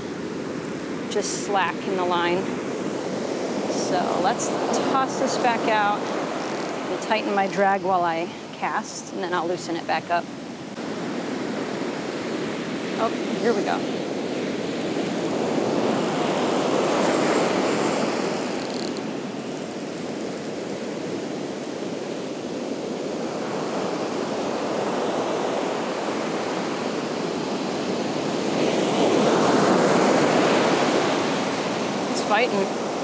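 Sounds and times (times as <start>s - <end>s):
ocean surf breaking: 10.6s - 33.0s.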